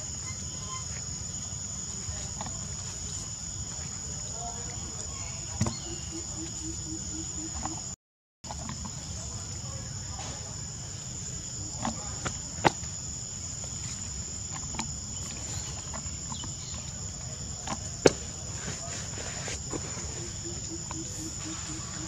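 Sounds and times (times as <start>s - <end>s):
high-pitched insect drone: 19.9s - 22.0s.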